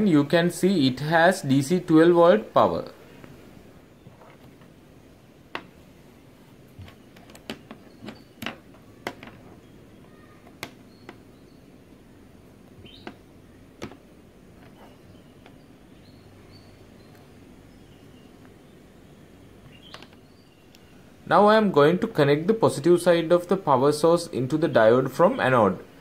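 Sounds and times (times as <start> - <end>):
faint bird chirps: 6.8 - 13.6, 14.6 - 21.2.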